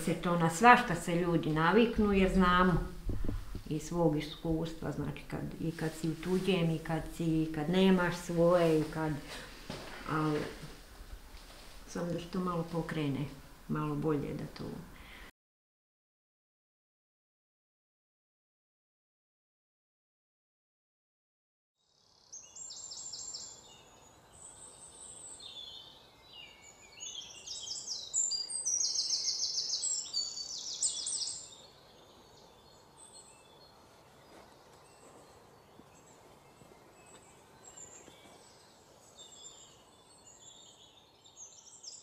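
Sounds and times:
faint outdoor hiss: 0.0 - 15.3, 21.9 - 42.0
songbirds chirping and trilling: 22.0 - 42.0.

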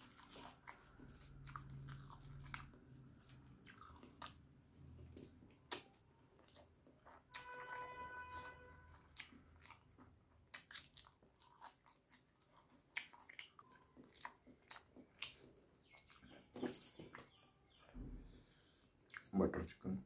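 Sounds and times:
wet chewing: 0.0 - 17.5, 19.0 - 19.3.

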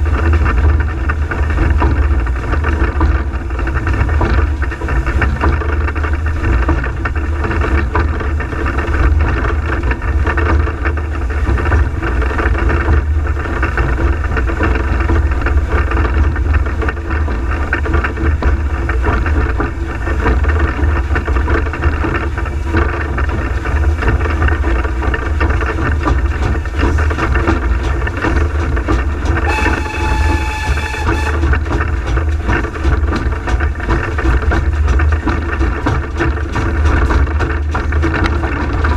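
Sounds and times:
steam locomotive rumbling on rails: 0.0 - 38.9
short high tone: 29.5 - 31.4.

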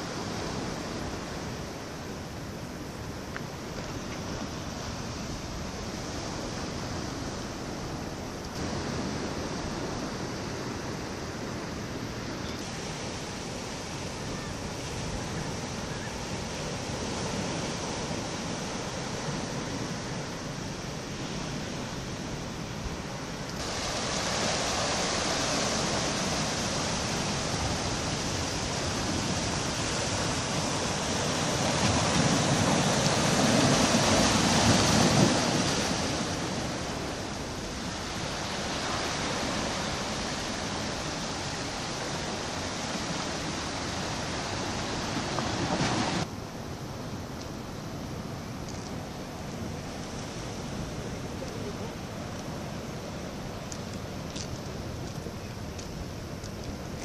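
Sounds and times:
sea surf breaking on rocks: 3.5 - 46.3.

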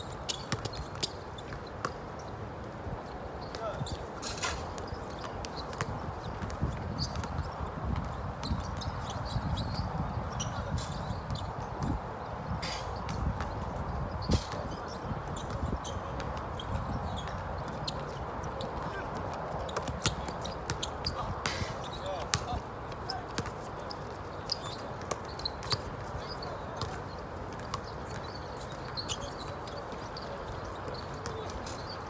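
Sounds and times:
basketball bouncing on court: 19.1 - 21.2, 22.1 - 23.6.

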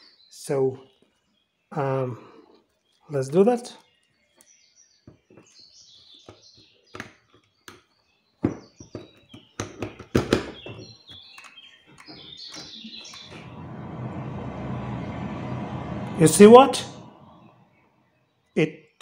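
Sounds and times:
steady low hum: 13.2 - 17.8.

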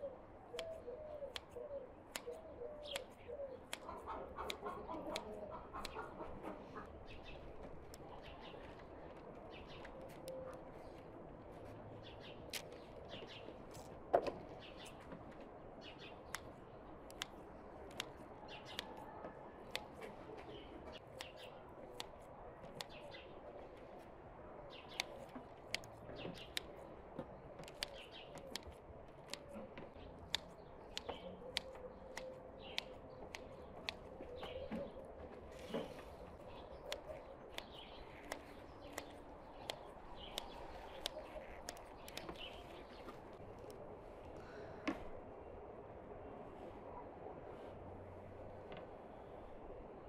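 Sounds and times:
birds chirping: 0.0 - 46.4
scissors snipping dough: 0.6 - 6.0, 27.6 - 34.1, 36.7 - 42.6.

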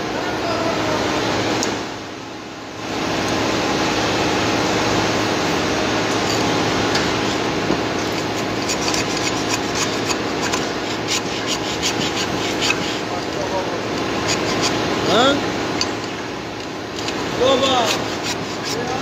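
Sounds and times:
gloved hand scrubbing rusty metal: 7.1 - 14.9, 17.0 - 19.0.

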